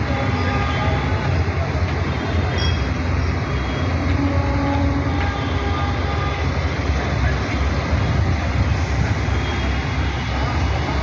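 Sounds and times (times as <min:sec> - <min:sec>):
diesel engine rumbling: 0:00.0 - 0:11.0.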